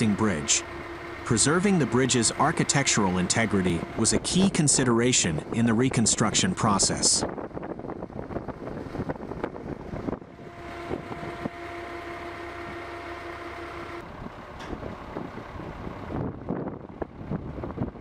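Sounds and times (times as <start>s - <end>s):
construction machinery noise: 0.0s - 17.2s
wind on microphone: 7.2s - 11.5s, 14.8s - 18.0s.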